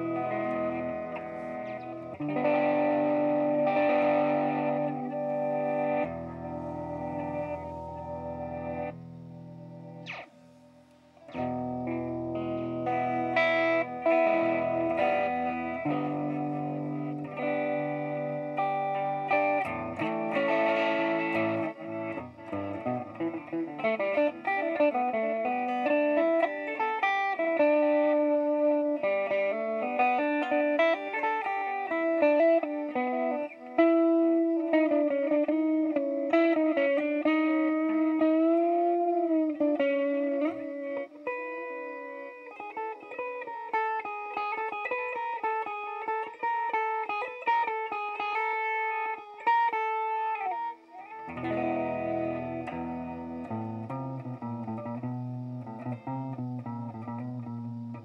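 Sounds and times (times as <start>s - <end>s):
electric guitar with reverse delay: 0.0s - 10.3s.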